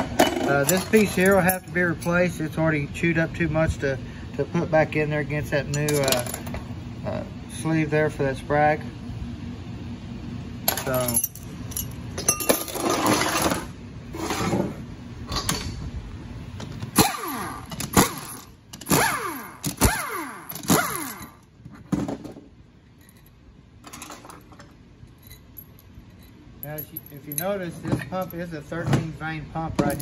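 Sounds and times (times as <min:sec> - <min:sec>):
metal parts clinking: 0:00.2 - 0:02.3, 0:05.7 - 0:06.6, 0:10.7 - 0:13.7, 0:17.6 - 0:19.0, 0:19.6 - 0:21.5, 0:22.8 - 0:28.5, 0:29.8 - 0:30.0
impact wrench whirring: 0:16.8 - 0:21.5.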